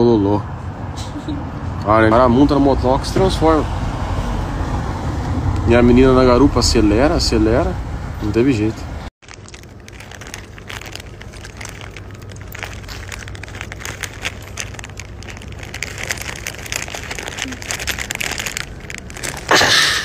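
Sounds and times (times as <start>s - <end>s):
plastic snack bag crinkling: 9.2s - 20.0s.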